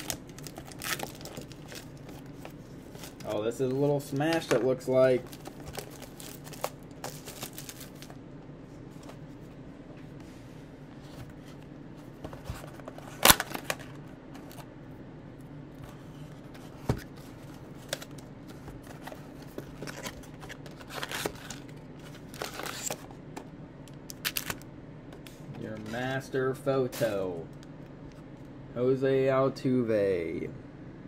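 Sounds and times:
cardboard rustling: 0.0 - 8.2, 11.0 - 14.6
foil packs crinkling: 0.0 - 8.2, 24.1 - 24.6.

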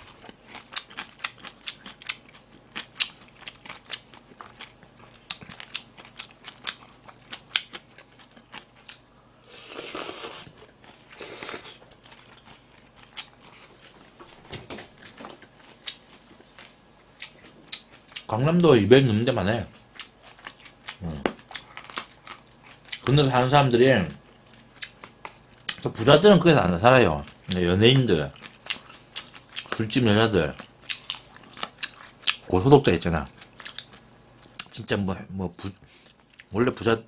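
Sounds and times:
slurping noodles: 9.5 - 11.8.

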